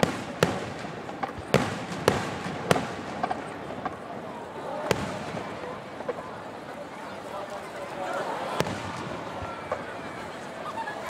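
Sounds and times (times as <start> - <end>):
firework shells bursting: 0.0 - 4.2.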